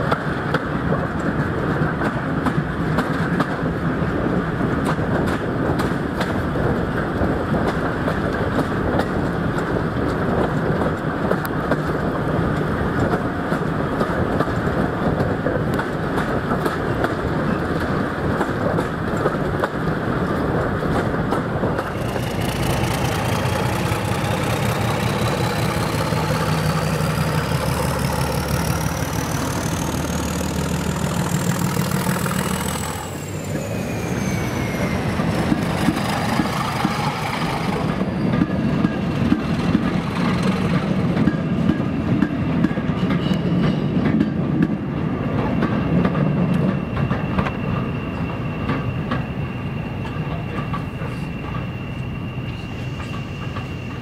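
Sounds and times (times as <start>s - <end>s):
train wheels clattering over rail joints: 0.0s - 33.6s, 34.6s - 54.0s
locomotive engine rumbling: 0.0s - 54.0s
high engine whine: 21.8s - 38.2s.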